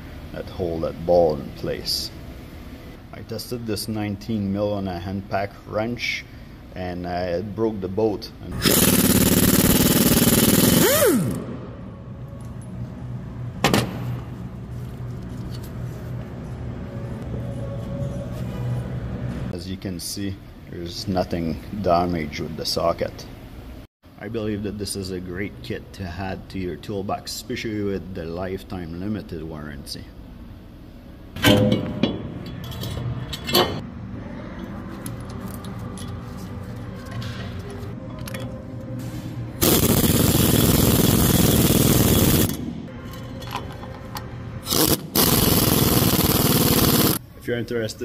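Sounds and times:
impact wrench hammering: 0:08.6 - 0:11.4.

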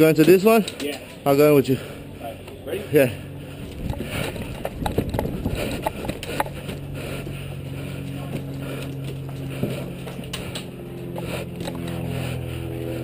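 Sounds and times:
steady low hum: 0:00.0 - 0:13.0
quick footsteps on dirt: 0:03.4 - 0:12.4
gear knocking and rattling: 0:03.6 - 0:06.5.

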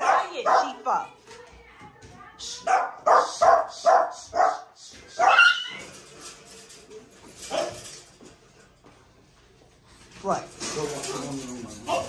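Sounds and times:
dog barking: 0:00.0 - 0:00.8, 0:02.6 - 0:05.8.

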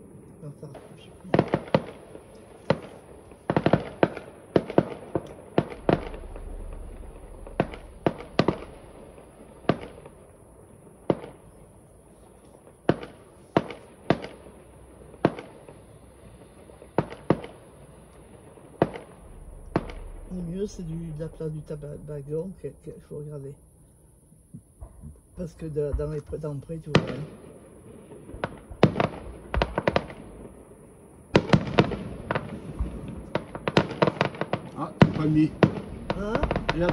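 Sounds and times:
fireworks bangs: 0:00.0 - 0:11.8, 0:12.6 - 0:23.3, 0:25.8 - 0:36.9.

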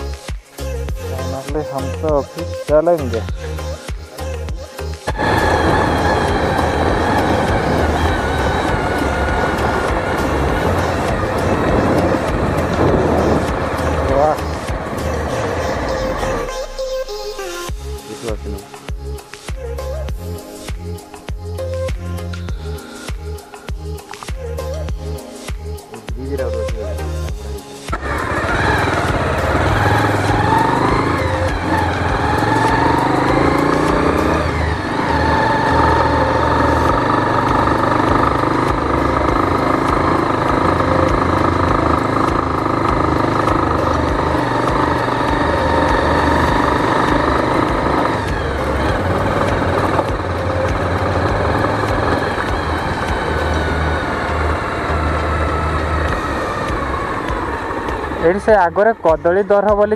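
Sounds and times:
motorcycle engine running: 0:04.4 - 0:16.7, 0:27.3 - 0:59.9.

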